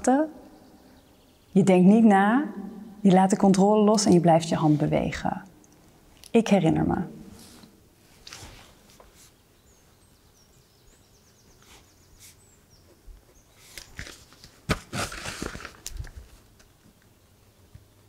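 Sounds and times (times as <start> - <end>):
paper rustling: 13.6 - 16.5.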